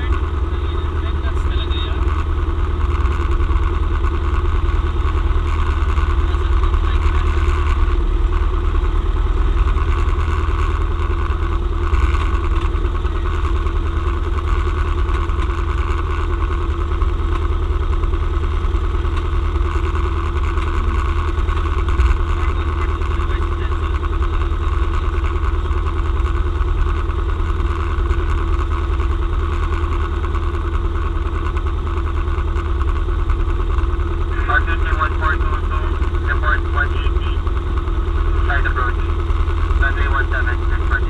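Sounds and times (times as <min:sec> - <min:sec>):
airplane engine running: 0:00.0 - 0:41.0.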